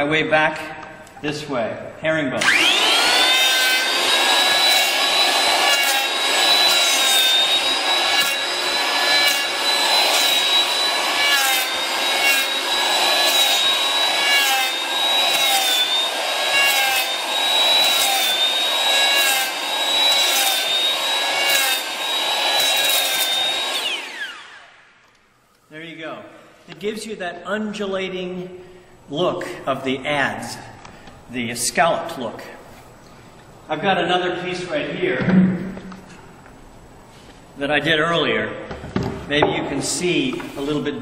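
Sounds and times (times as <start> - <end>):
planer blades cutting wood: 2.4 - 24.7
electric planer whining: 2.4 - 24.8.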